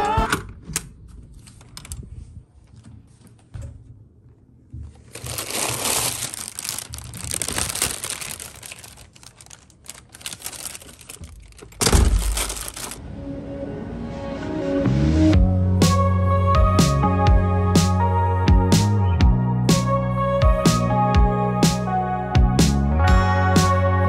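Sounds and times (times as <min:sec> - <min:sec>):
plastic bag rustling: 0:04.8 - 0:13.0.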